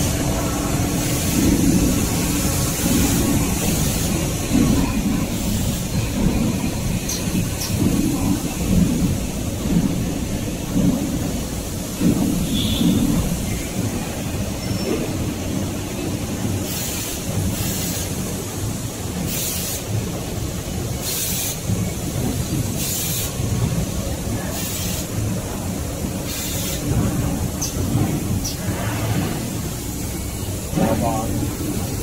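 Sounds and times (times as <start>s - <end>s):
machinery rumbling: 25.1s - 32.0s
short bursts of hiss: 26.3s - 26.8s.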